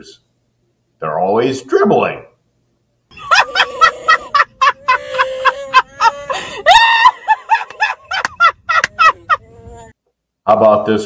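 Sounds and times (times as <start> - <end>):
woman laughing: 3.1 - 9.9.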